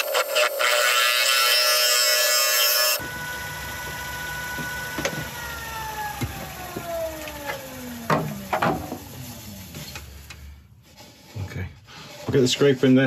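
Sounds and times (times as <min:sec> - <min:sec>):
lathe motor whine spinning down: 0:00.0 - 0:10.2.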